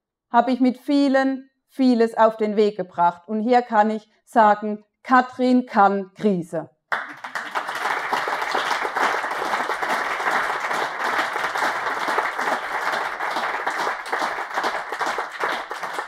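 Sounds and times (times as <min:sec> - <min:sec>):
audience applauding: 0:06.9 - 0:16.0.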